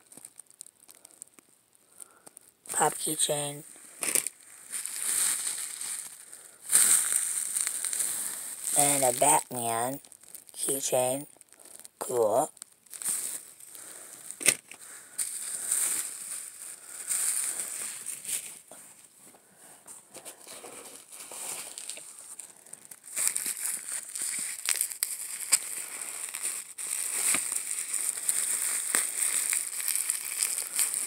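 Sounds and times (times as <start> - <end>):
bubble wrap crinkling: 0.0 - 31.0.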